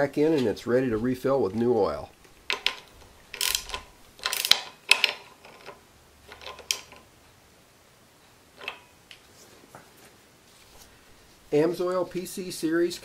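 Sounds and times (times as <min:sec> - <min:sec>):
ratchet wrench clicking: 0:02.5 - 0:05.2.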